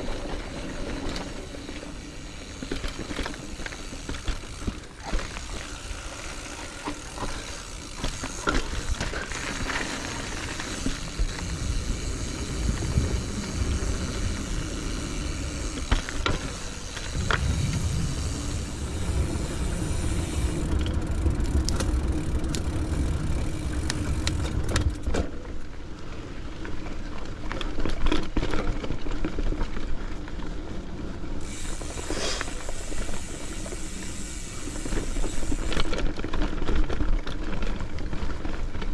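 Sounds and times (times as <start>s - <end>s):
bike clicks and rattles: 0.0s - 38.9s
bike tyres on dirt trail: 0.0s - 38.9s
wind rumble on microphone: 11.1s - 15.8s, 17.0s - 25.1s.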